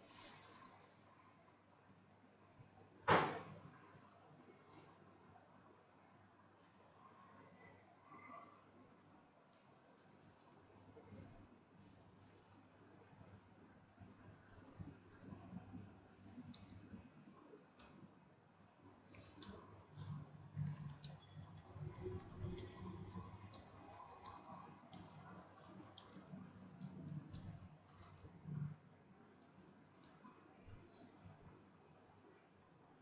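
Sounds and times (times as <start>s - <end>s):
typing on computer keyboard: 16.5s - 16.9s, 19.1s - 28.6s, 29.4s - 30.8s.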